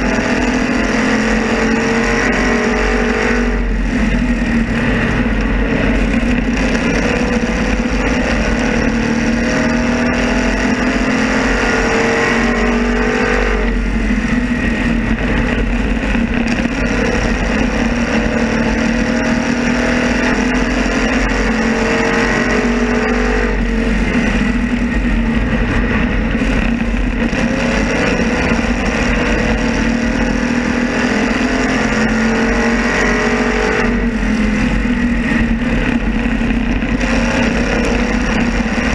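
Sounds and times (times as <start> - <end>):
race car engine: 0.0 - 38.9
wind and road noise: 0.0 - 38.9.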